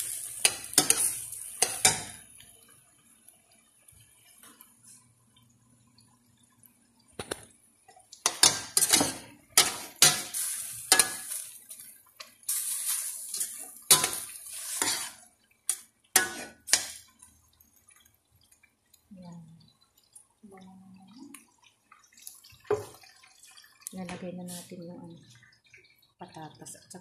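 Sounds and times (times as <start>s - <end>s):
meat sizzling: 0.0s - 5.0s, 7.1s - 19.1s
metal spoon scraping a pot: 8.2s - 11.4s, 12.5s - 15.2s, 16.2s - 17.0s.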